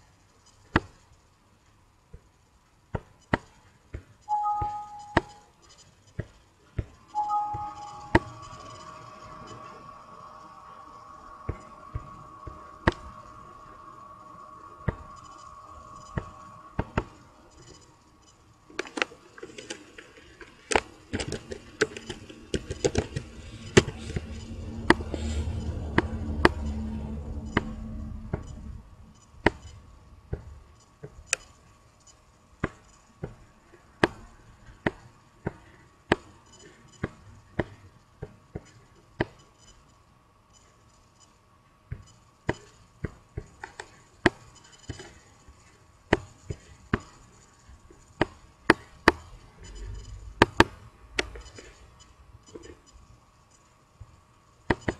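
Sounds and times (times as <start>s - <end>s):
low rumble: 23.2s - 30.2s.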